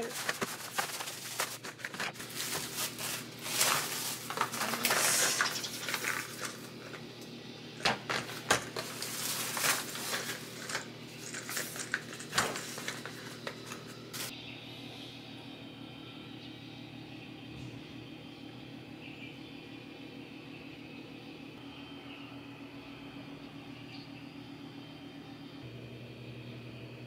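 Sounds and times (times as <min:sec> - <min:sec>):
cardboard sleeves handled: 0:00.0 - 0:05.4, 0:08.6 - 0:14.3
bubble wrap crinkling: 0:00.0 - 0:07.0, 0:07.8 - 0:14.3.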